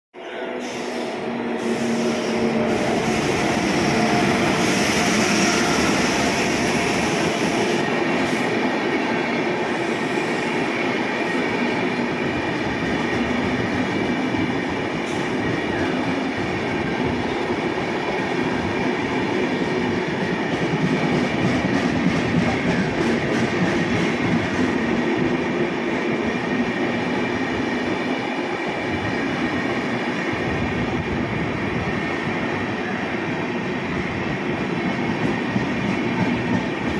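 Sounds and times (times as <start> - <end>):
locomotive hiss: 0.6 - 8.5
train wheels rumbling on rails: 0.6 - 36.9.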